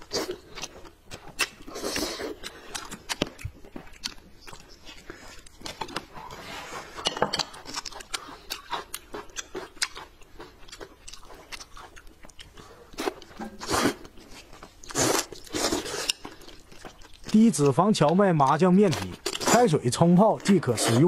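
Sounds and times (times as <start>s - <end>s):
crunchy bites and chewing: 0.0s - 6.2s, 7.4s - 21.0s
noodles slurping: 12.4s - 21.0s.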